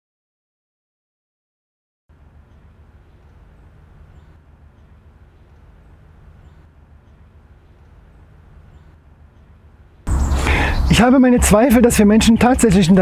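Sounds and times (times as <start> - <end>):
faint high bird chirps: 2.3 - 11.0.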